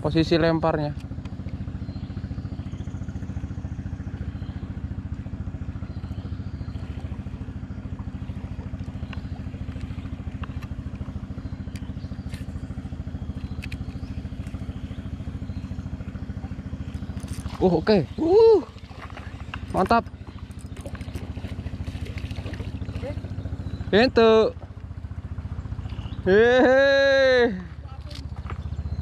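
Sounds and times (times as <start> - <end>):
small engine idling: 0.0 - 29.0
faint ticks: 8.8 - 10.8.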